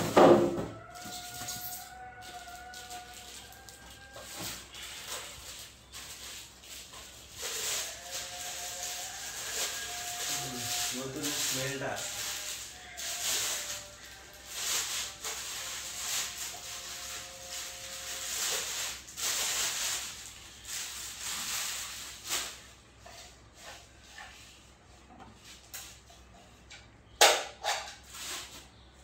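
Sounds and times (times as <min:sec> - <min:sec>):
plastic wrapping crinkling: 0:00.0 - 0:22.8.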